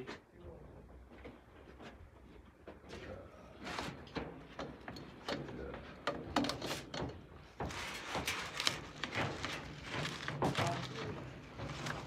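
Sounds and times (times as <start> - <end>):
rustling and scraping: 6.5 - 12.0.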